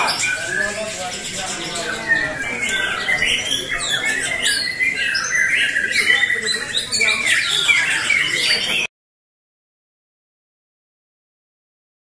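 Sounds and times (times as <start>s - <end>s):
birds singing loud whistles: 0.0s - 8.9s
fast buzzy bird trill: 0.0s - 8.9s
low crowd chatter: 0.0s - 8.9s.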